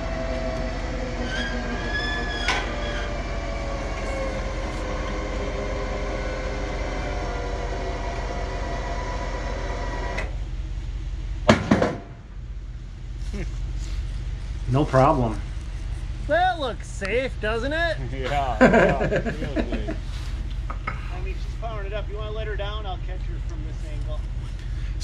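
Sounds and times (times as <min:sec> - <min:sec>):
hydraulic pump whining: 0:00.0 - 0:10.5.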